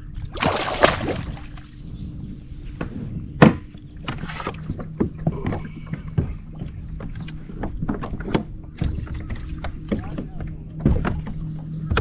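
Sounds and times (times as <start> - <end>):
gear knocking against plastic kayaks: 3.4 - 12.0.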